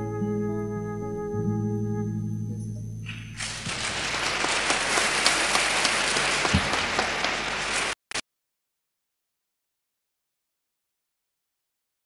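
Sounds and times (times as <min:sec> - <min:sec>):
audience applauding: 0:03.4 - 0:08.0.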